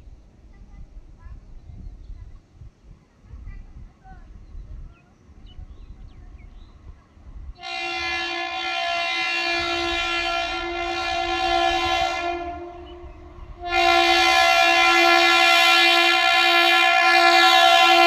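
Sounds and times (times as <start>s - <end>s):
train horn blast: 7.6s - 18.0s.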